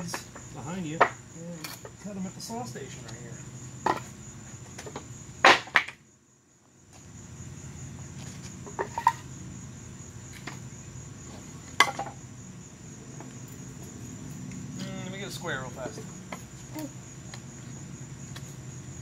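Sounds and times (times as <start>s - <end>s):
crickets chirring: 0.0s - 19.0s
wooden boards knocking: 11.8s - 12.2s.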